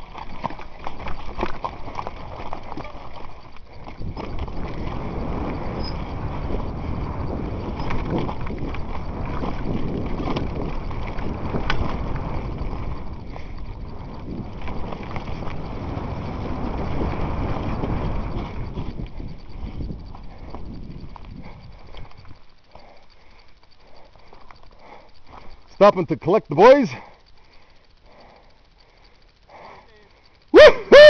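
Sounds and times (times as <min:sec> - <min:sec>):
wind on microphone: 0:00.0 - 0:22.5
mountain bike rattling: 0:00.0 - 0:31.0.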